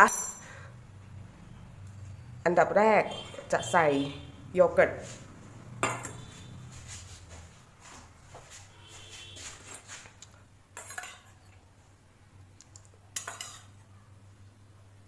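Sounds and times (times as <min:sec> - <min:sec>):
metal spoon scraping a bowl: 0:02.0 - 0:04.1, 0:05.8 - 0:06.5, 0:09.4 - 0:11.6, 0:13.2 - 0:13.8.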